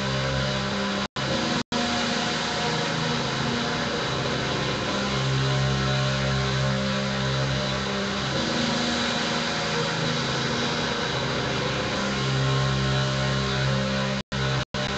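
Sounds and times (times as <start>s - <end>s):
drone guitar music: 0.0s - 14.9s.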